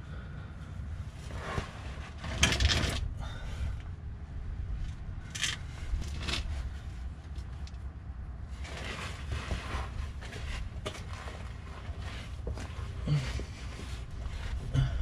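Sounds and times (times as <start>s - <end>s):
low rumble: 0.0s - 9.4s.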